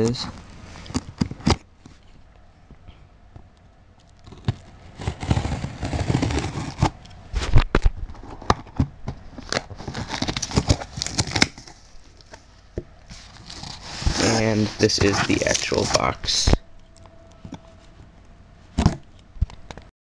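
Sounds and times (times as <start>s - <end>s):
knife cutting packing tape: 9.4s - 11.8s.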